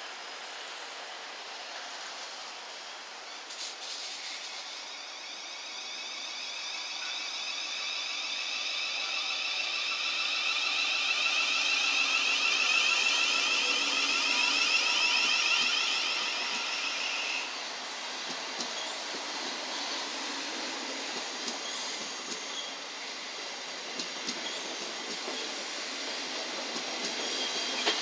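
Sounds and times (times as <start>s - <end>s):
electric train whine: 0.0s - 28.0s
train wheels rumbling: 0.2s - 28.0s.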